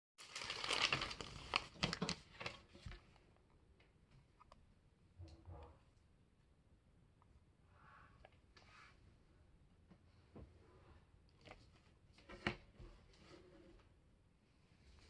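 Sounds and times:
paper rustling and crinkling: 0:00.2 - 0:03.1.

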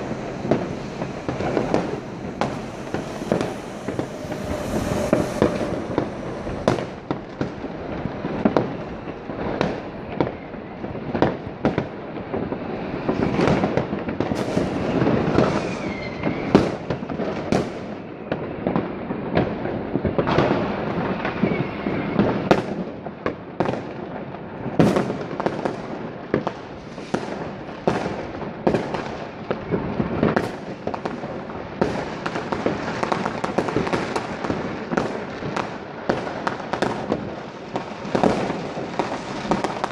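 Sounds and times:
firework whistle: 0:00.0 - 0:11.3, 0:12.6 - 0:18.8, 0:19.4 - 0:22.8
fireworks bangs: 0:00.0 - 0:39.9.

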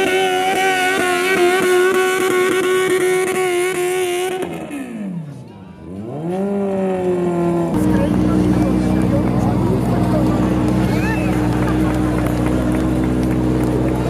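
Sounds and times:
tractor engine revving: 0:00.0 - 0:14.0.

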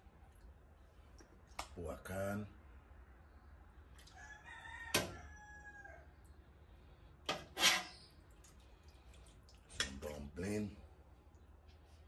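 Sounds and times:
rooster crowing: 0:04.1 - 0:06.1
ladle scraping in pot: 0:07.3 - 0:08.1.

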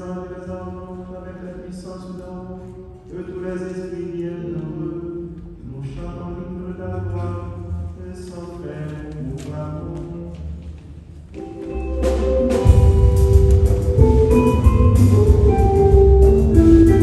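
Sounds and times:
held church music notes: 0:00.0 - 0:17.0
band playing: 0:11.3 - 0:17.0
drum hits: 0:12.0 - 0:17.0.

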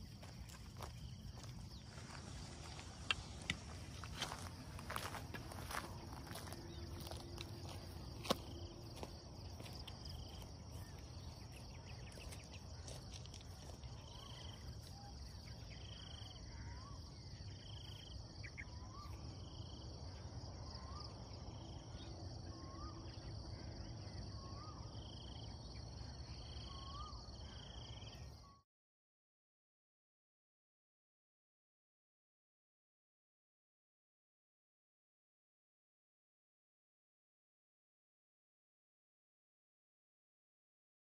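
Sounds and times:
insect drone: 0:00.0 - 0:28.6.

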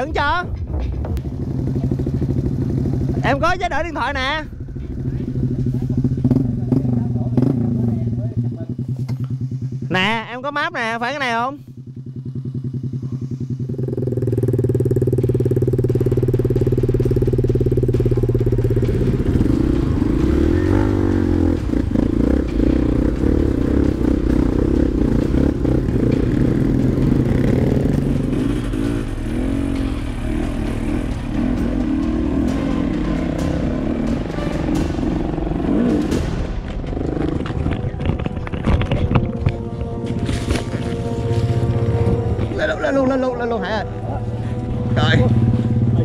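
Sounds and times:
dirt bike engine revving: 0:01.3 - 0:43.3.

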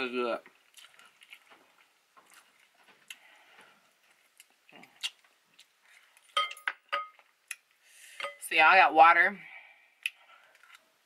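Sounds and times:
mouth clicks and smacks chewing: 0:00.6 - 0:03.3, 0:04.0 - 0:06.3.

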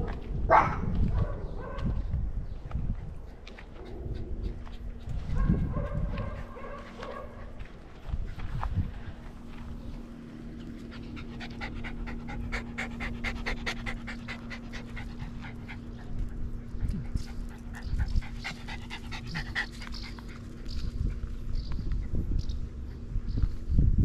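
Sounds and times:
dog panting: 0:03.1 - 0:08.8, 0:10.4 - 0:21.4.

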